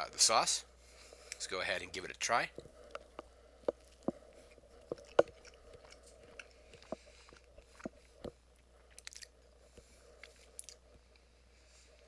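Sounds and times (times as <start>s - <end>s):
person chewing with mouth clicks: 2.9s - 10.9s.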